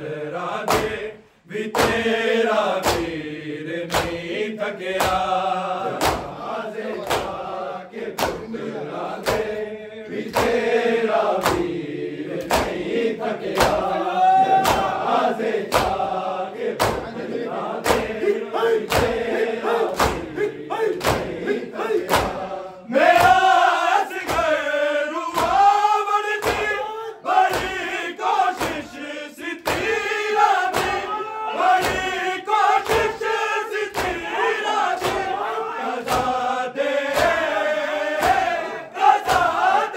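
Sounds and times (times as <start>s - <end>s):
crowd of men chanting: 0.0s - 39.9s
hands slapping bare chests: 0.7s - 1.0s, 1.7s - 2.1s, 2.7s - 3.2s, 3.9s - 4.3s, 4.9s - 7.4s, 8.1s - 8.5s, 9.2s - 10.6s, 11.3s - 16.1s, 16.8s - 17.1s, 17.8s - 22.4s, 23.1s - 23.6s, 24.2s - 24.6s, 25.3s - 29.0s, 29.6s - 35.4s, 36.0s - 36.4s, 37.1s - 39.8s.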